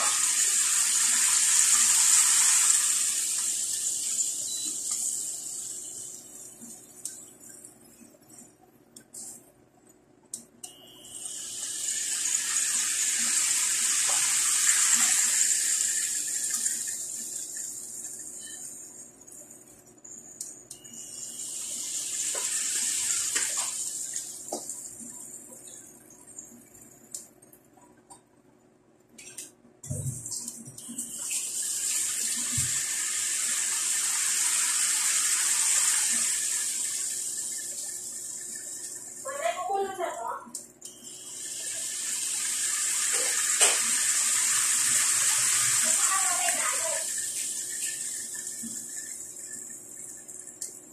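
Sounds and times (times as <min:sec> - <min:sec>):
pork sizzling in hot oil: 0:00.0 - 0:05.9, 0:11.2 - 0:18.8, 0:21.0 - 0:23.9, 0:31.2 - 0:39.8, 0:41.1 - 0:50.3.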